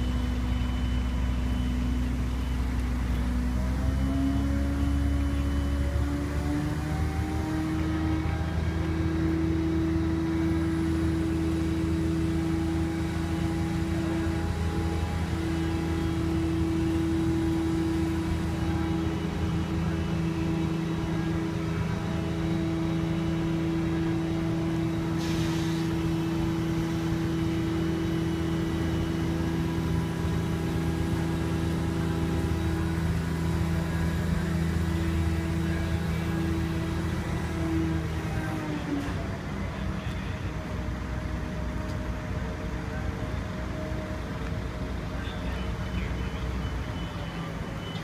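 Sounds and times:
diesel engine drone: 0.0s - 48.0s
brief hiss: 25.2s - 26.0s.

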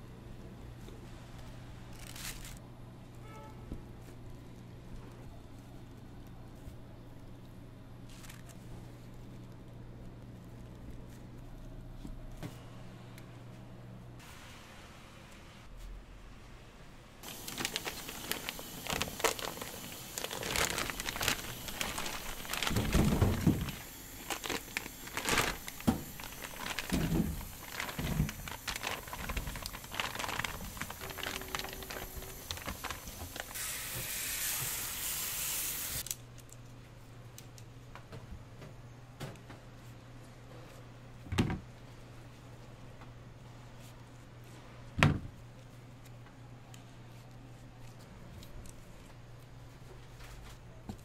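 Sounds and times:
plastic packaging crinkling: 1.9s - 2.6s, 17.2s - 33.6s
water spraying hiss: 33.5s - 36.1s.

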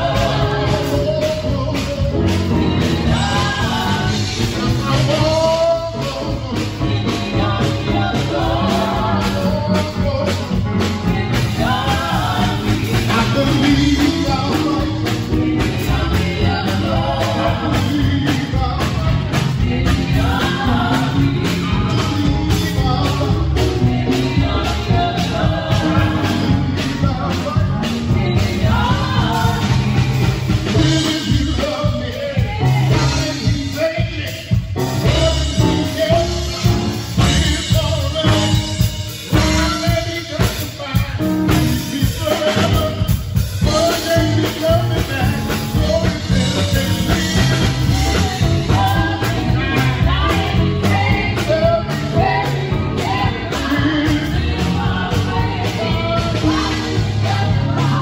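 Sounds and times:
drum kit: 0.0s - 58.0s
electric bass guitar: 0.0s - 58.0s
keyboard: 0.0s - 58.0s
singers on microphones: 0.0s - 58.0s.

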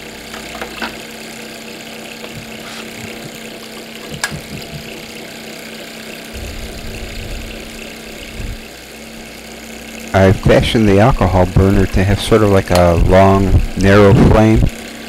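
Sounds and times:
small engine running with hum: 0.0s - 15.0s
low rumble: 6.4s - 8.7s.

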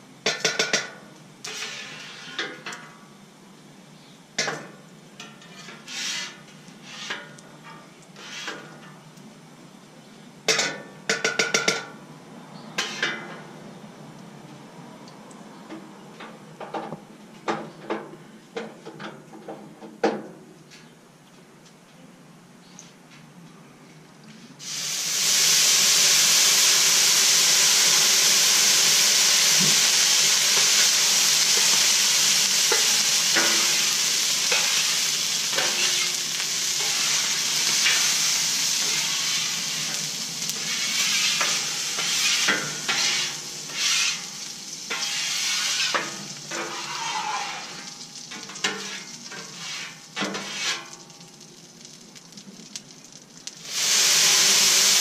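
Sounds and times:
water sizzling on hot griddle: 0.0s - 3.2s, 4.4s - 9.4s, 12.8s - 13.5s, 24.6s - 55.0s
metal scraper on steel plate: 1.5s - 2.4s, 5.2s - 7.3s, 8.2s - 8.7s, 12.8s - 13.2s, 40.6s - 44.3s, 44.9s - 47.7s, 48.6s - 50.9s.

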